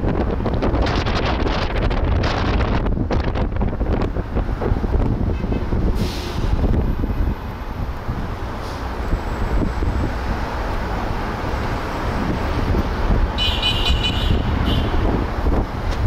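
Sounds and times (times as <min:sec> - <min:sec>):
wind and road noise: 0:00.0 - 0:16.0
high-pitched horn beeping: 0:13.4 - 0:15.0.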